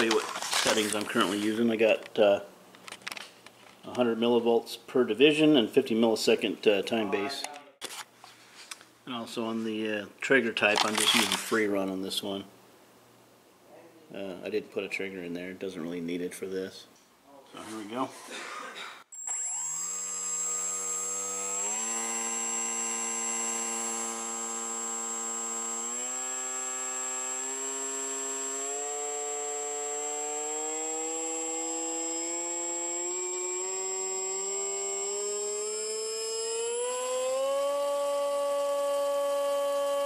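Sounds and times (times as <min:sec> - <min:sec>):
electric motor and propeller spinning: 0:00.0 - 0:01.6, 0:19.2 - 0:40.0
steady high whine: 0:19.2 - 0:40.0.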